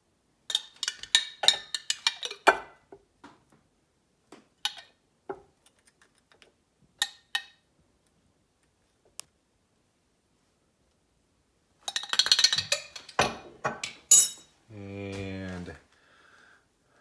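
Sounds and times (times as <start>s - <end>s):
metal spoon clinking on glass jar: 0.5s - 2.7s, 14.1s - 14.5s.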